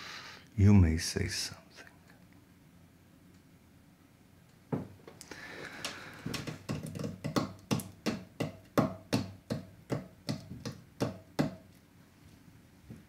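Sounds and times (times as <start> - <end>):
hand tapping on hard surface: 6.3 - 11.6.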